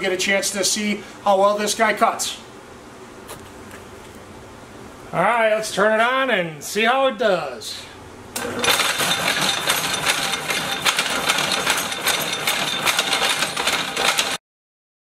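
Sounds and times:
power hacksaw cutting steel: 0:08.4 - 0:14.4.

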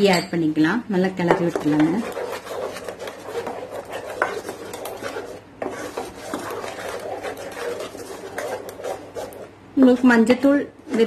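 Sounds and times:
metal spoon scraping a pan: 0:01.3 - 0:10.0.

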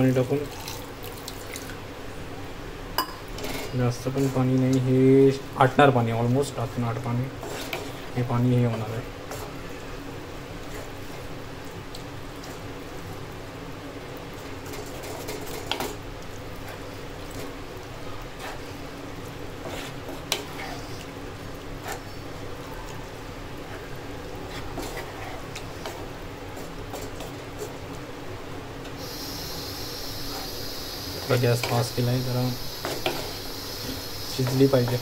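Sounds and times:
food bubbling and sizzling in pan: 0:00.0 - 0:35.0
spatula scraping pan: 0:07.4 - 0:08.1, 0:19.6 - 0:21.0, 0:24.5 - 0:27.8.

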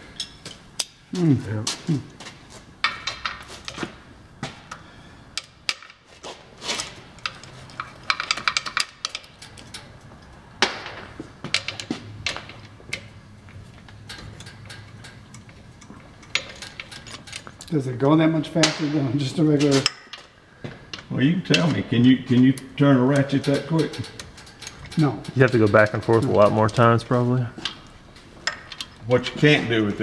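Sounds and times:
metallic clicks of socket and bolts: 0:13.9 - 0:17.8.

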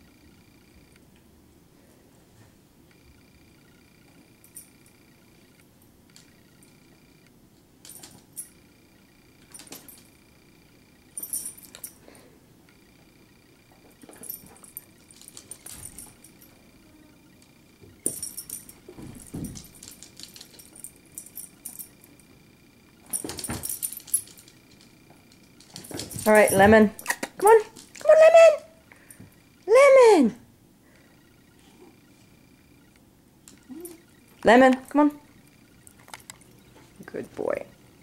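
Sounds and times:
dog collar tags jingling: 0:11.1 - 0:12.0, 0:14.0 - 0:16.6, 0:18.0 - 0:22.3, 0:23.0 - 0:28.7.

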